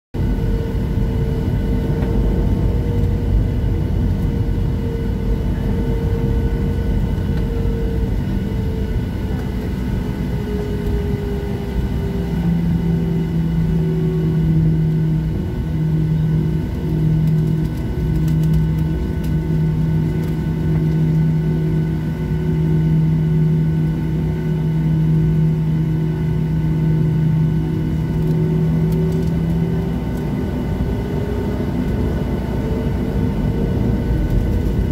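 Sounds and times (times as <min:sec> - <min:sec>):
aircraft engines rumbling: 0:00.1 - 0:34.9
low pulsing hum: 0:00.2 - 0:34.9.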